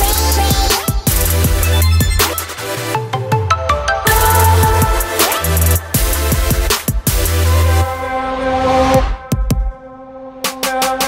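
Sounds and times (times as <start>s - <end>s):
held synth chords: 1.0s - 8.4s.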